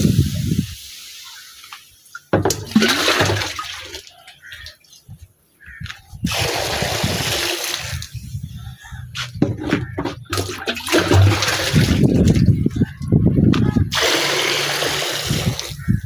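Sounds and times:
jug scooping milk in a plastic drum: 9.4 - 12.4.

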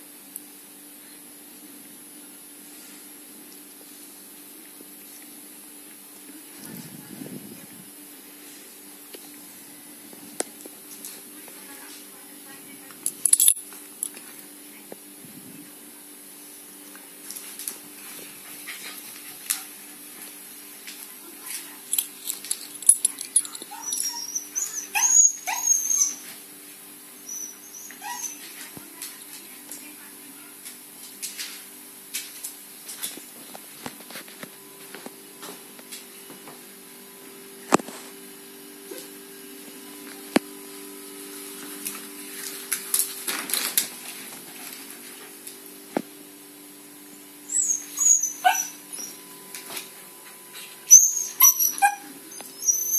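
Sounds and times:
steady low hum: 0.0 - 25.6
puppy squeaky calls: 23.7 - 26.3, 27.3 - 28.5, 47.5 - 49.2, 50.9 - 52.9.

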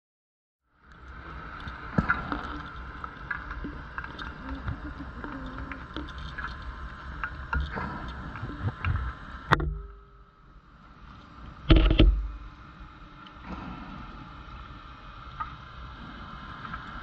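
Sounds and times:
underwater clicks and knocks: 7.2 - 10.2, 11.7 - 12.6.

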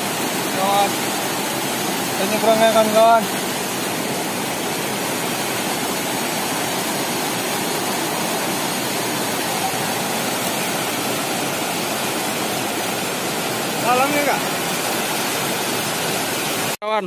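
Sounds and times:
river rushing over rapids: 0.0 - 16.8.

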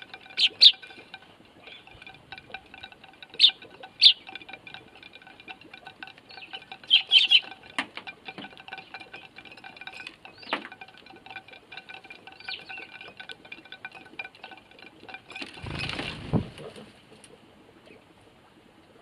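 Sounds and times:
sparrows chirping: 0.0 - 14.6
flock wingbeats: 0.0 - 16.8
birds pecking taps: 0.0 - 18.2.

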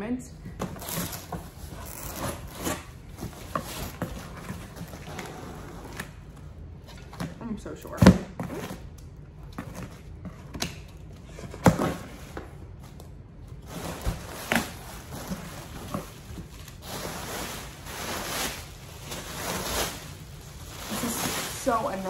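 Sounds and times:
plastic and bubble wrap crinkling: 0.6 - 6.3, 12.0 - 22.0.

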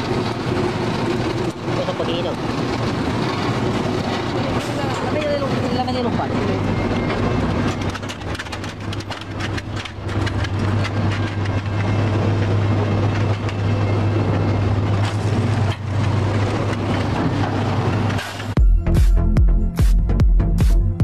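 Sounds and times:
chain conveyor clatter: 0.0 - 18.5
machinery low hum: 0.0 - 21.0
sharp clicks and knocks: 7.0 - 13.8.

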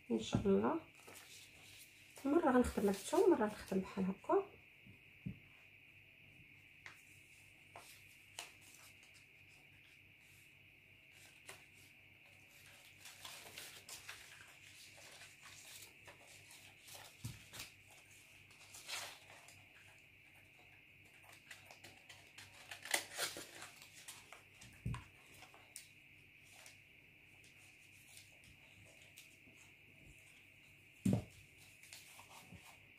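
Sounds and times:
faint high hiss: 0.0 - 32.9
paper rustling and crinkling: 0.9 - 3.9, 7.7 - 10.4, 11.1 - 26.8, 31.0 - 32.9.

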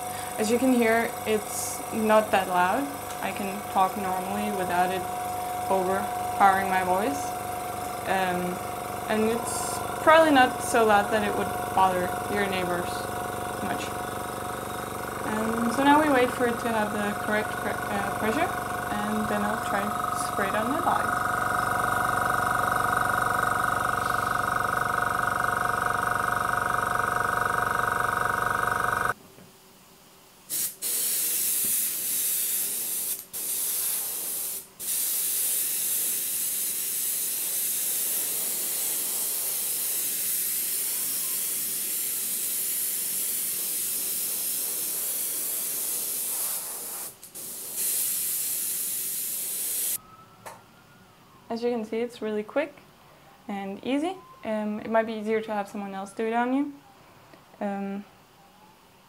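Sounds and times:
small compressor humming: 0.0 - 29.2, 34.5 - 46.5
airbrush spraying hiss: 30.5 - 50.0.

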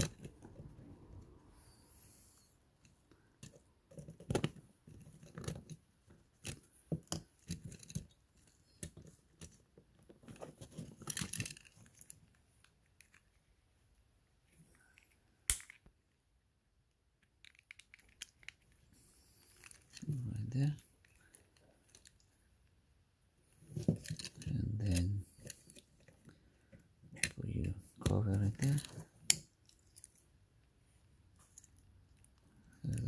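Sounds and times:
plastic parts clicking and scraping: 2.8 - 13.5, 17.2 - 22.5, 23.4 - 30.3.

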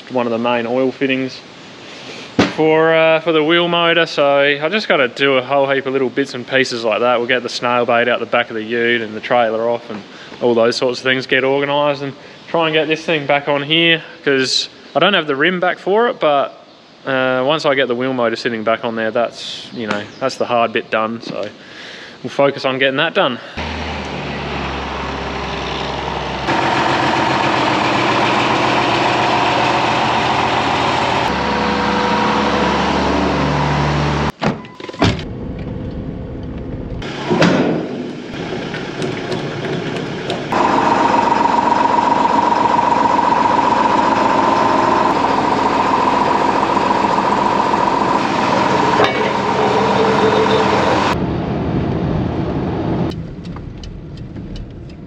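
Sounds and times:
engine running: 23.6 - 34.3, 35.3 - 51.3
road noise inside vehicle: 23.6 - 34.4, 38.2 - 55.0.

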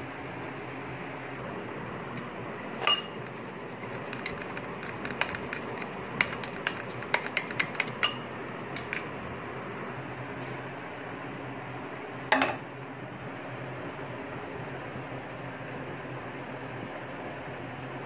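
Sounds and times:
utensil clinking glass bowl: 2.8 - 3.4, 4.1 - 8.2
egg being stirred: 2.8 - 8.2.

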